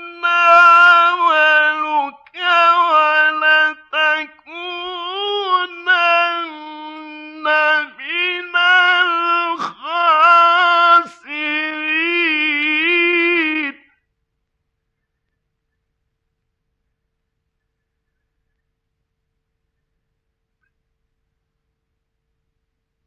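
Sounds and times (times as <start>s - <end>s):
man chanting melodically: 0.0s - 14.0s
breaths between phrases: 9.6s - 9.8s.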